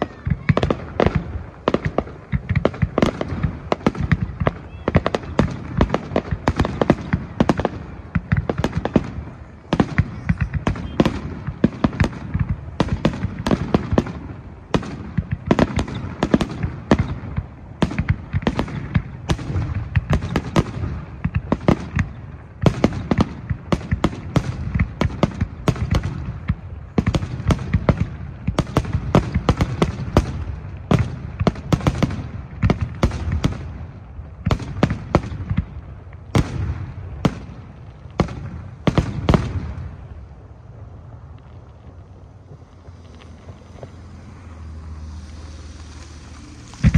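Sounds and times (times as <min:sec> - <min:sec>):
firework shells bursting: 0:41.4 - 0:46.9.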